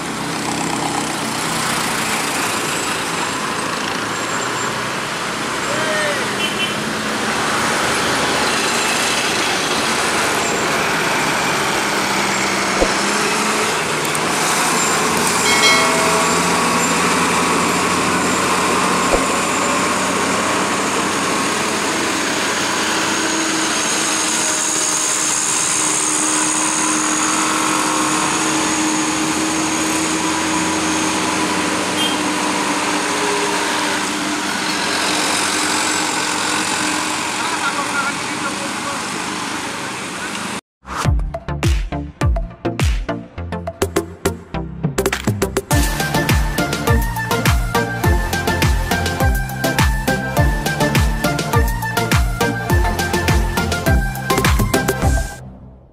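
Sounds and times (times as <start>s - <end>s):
motorcycles passing: 0.0s - 24.5s
cars passing close by: 0.0s - 40.6s
diesel engines pulling uphill: 0.0s - 40.6s, 42.6s - 55.9s.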